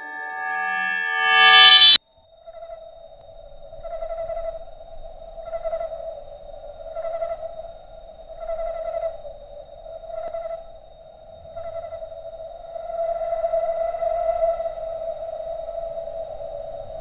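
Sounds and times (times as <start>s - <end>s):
eerie electronic drone: 0.0s - 2.0s.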